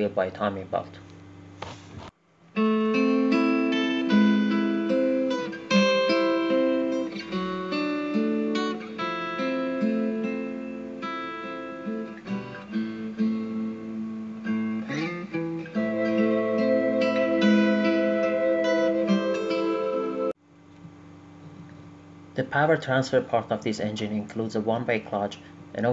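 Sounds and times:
acoustic guitar music: 2.6 - 20.4.

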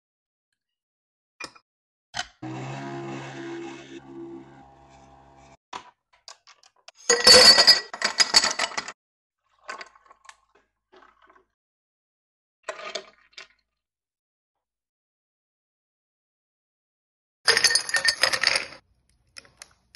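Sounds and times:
coffee machine hum: 2.4 - 5.6.

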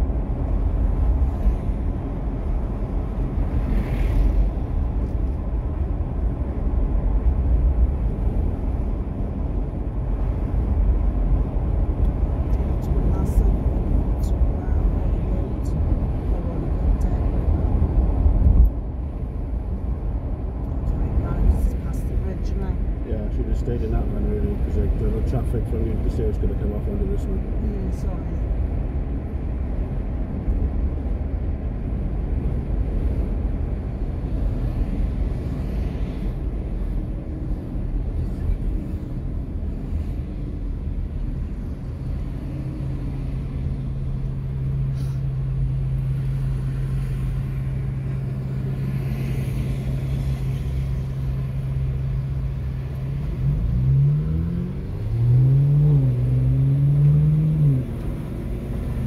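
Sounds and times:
car engine hum: 0.0 - 59.0
road and tyre rumble: 0.0 - 59.0
car engine accelerating: 41.3 - 59.0.

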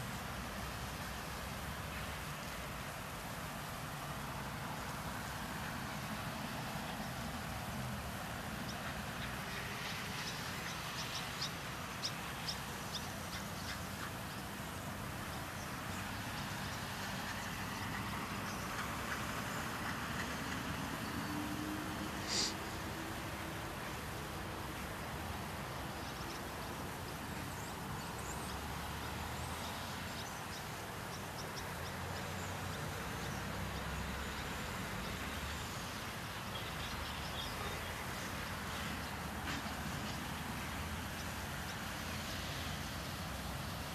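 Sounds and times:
road traffic rumble: 0.0 - 43.9
swallows twittering: 8.7 - 13.9.

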